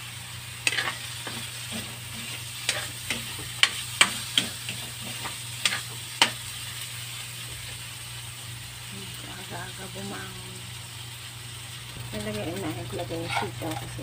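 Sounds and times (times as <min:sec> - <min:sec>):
food sizzling: 0:00.0 - 0:14.0
metal spatula scraping a wok: 0:00.6 - 0:06.4, 0:13.1 - 0:14.0.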